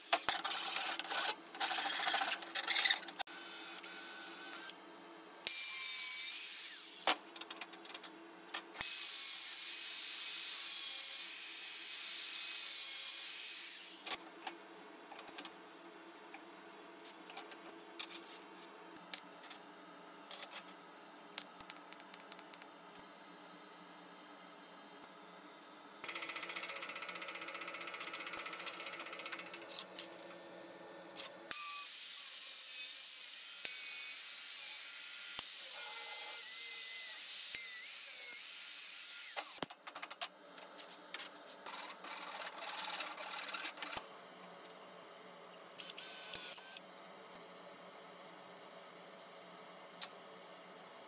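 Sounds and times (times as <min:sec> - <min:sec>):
angle grinder cutting steel: 0:31.5 - 0:39.6.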